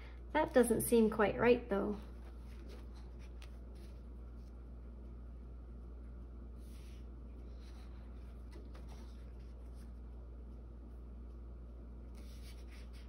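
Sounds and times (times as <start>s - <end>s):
paper pages rustling: 2.0s - 4.6s, 6.6s - 10.1s, 12.1s - 13.0s.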